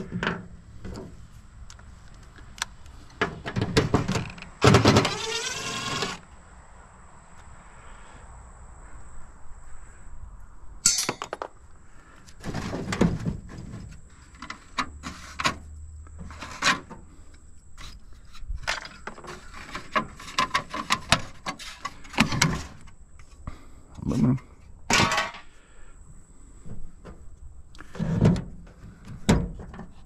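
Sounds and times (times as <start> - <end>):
hand tools clanking on metal: 10.8 - 11.5.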